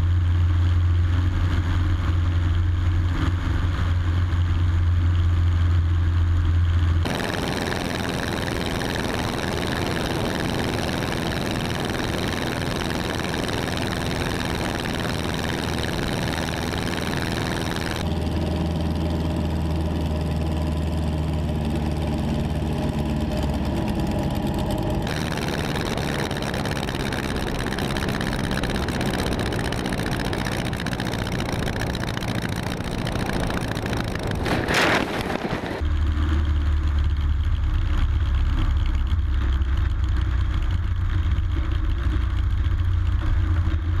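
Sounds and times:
light plane engine and propeller: 0:00.0 - 0:44.0
heavy wind rush: 0:25.1 - 0:35.8.

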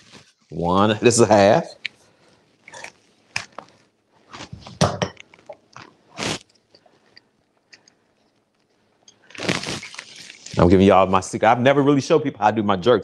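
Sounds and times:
citrus squeezer crunchy squelches: 0:05.3 - 0:07.8, 0:09.2 - 0:10.8.

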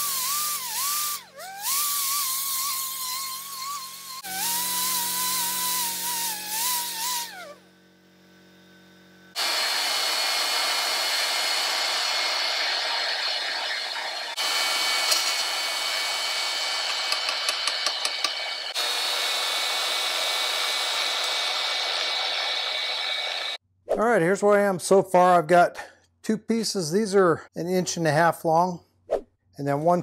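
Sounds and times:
band saw cutting steel: 0:00.0 - 0:07.8, 0:09.3 - 0:23.6
angle grinder whining on steel: 0:00.0 - 0:23.6.

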